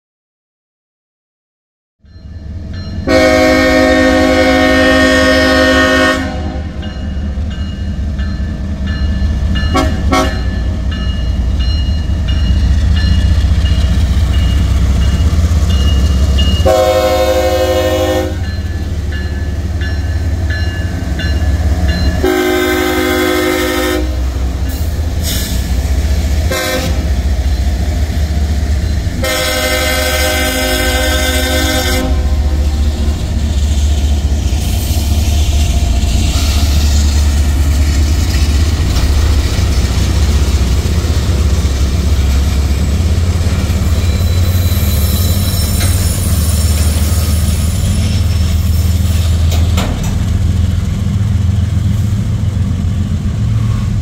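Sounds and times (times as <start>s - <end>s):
diesel locomotive rumble: 2.5s - 54.0s
train air horn: 3.1s - 6.8s, 9.7s - 10.5s, 16.6s - 18.5s, 22.2s - 24.5s, 26.5s - 27.1s, 29.2s - 32.9s.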